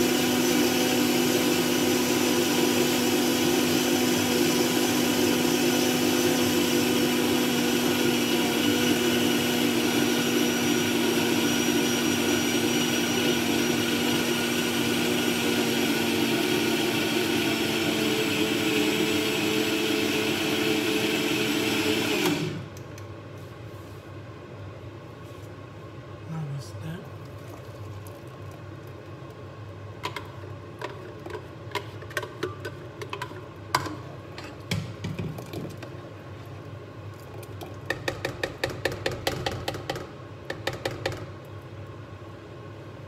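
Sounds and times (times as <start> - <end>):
blender motor running: 0.0 - 22.7.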